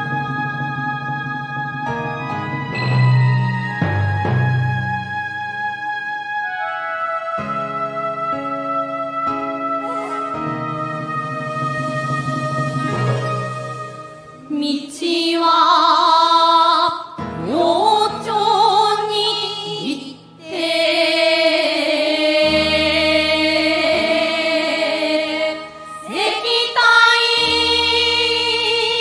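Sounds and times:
sustained accompaniment notes: 0.0 - 14.6
women chanting together: 20.4 - 28.1.

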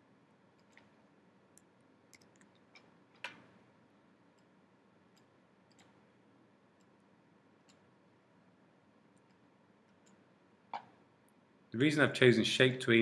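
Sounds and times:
mouse and keyboard clicks: 5.2 - 6.0.

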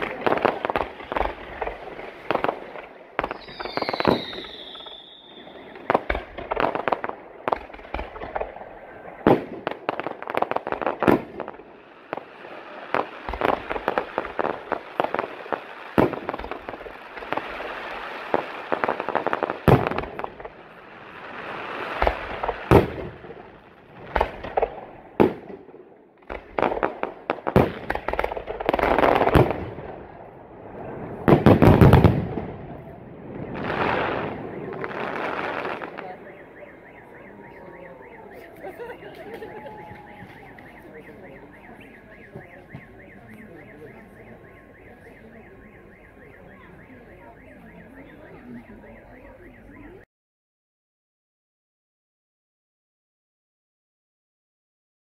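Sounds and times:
fireworks bangs and pops: 0.0 - 44.2
firework falling whistle: 3.2 - 8.1, 33.3 - 50.0.

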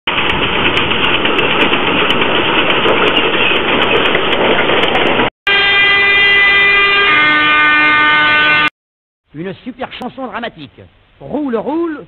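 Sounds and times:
steam locomotive passing: 0.1 - 8.7.

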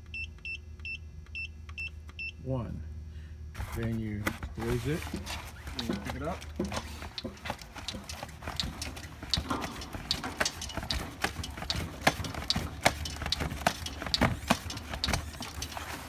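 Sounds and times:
steady low hum: 0.0 - 16.0
pallet jack clicks and clunks: 5.2 - 16.0.

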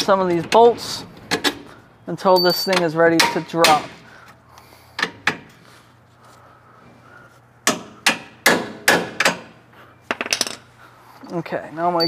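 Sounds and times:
hammer tapping on metal bolts: 2.4 - 4.0, 7.6 - 9.5.

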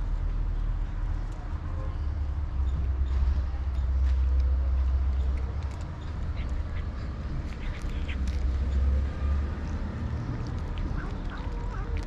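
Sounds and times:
steady low rumble: 0.0 - 12.0
cat crunching dry kibble: 4.2 - 12.0.

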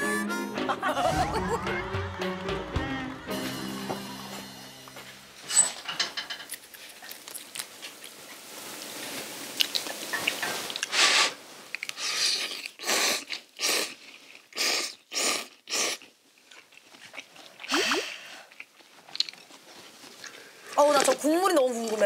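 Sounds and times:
noodles being slurped: 9.6 - 19.4.

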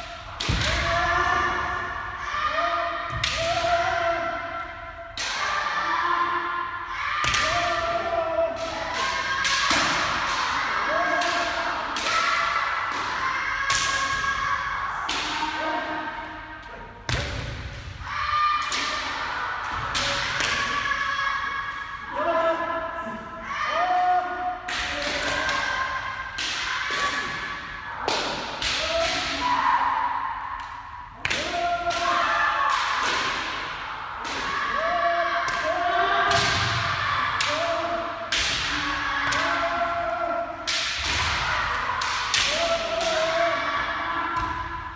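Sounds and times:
long drawn-out shouts: 18.0 - 44.9.

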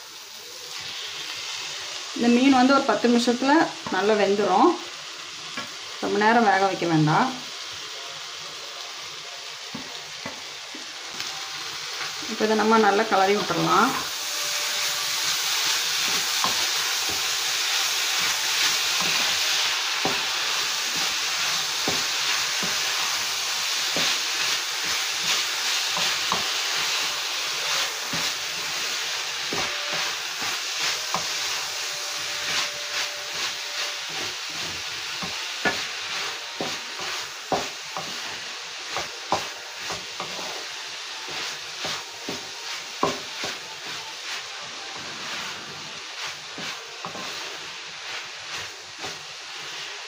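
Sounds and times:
food sizzling in a pan: 0.0 - 50.0
wooden spatula scraping a pan: 12.0 - 50.0.

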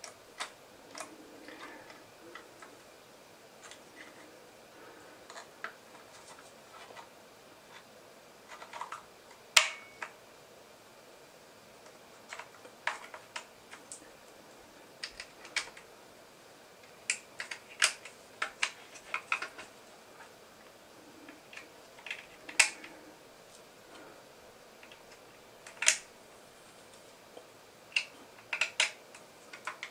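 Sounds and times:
plastic parts clicking together: 0.0 - 2.7, 8.4 - 10.2, 11.8 - 14.0, 15.0 - 15.9, 16.8 - 19.7, 21.3 - 23.0, 24.8 - 26.1, 27.9 - 29.9.

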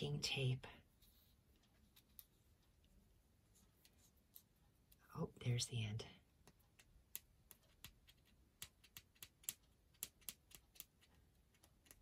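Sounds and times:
fingernail clicking on masking tape: 6.8 - 12.0.

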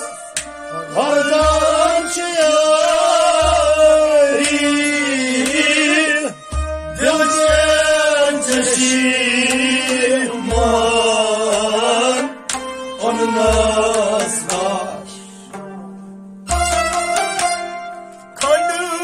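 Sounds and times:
men singing: 0.0 - 15.6
harmonium: 0.0 - 19.0
rabab: 0.0 - 19.0.

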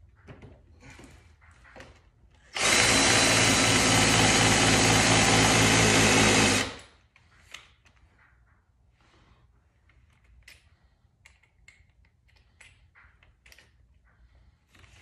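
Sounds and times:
electric power tool running: 2.6 - 6.8.

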